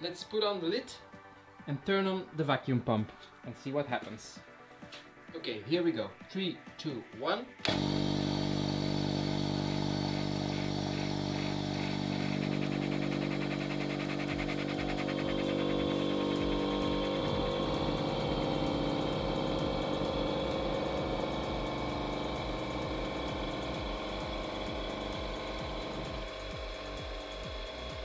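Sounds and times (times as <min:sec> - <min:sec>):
electric vacuum pump humming: 0:07.6 - 0:28.0.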